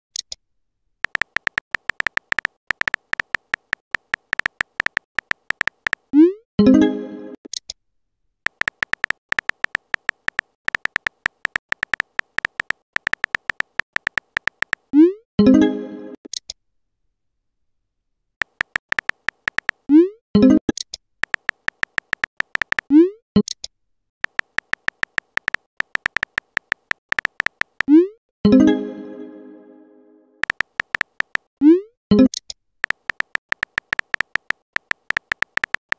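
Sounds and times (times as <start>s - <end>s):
keyboard tap clicks: 1.0s - 6.0s, 8.5s - 14.9s, 18.4s - 19.8s, 21.2s - 22.9s, 24.2s - 27.9s, 30.4s - 31.5s, 32.8s - 35.9s.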